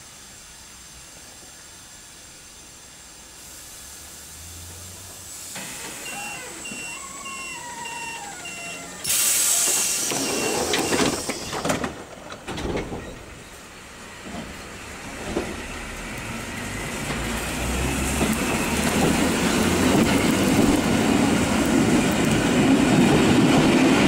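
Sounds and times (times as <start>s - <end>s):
door-warning beeper: 5.8s - 11.8s
steady air hiss: 9.0s - 10.3s
compressed-air hiss burst: 9.0s - 11.6s
train doors closing knocks: 9.6s - 13.4s.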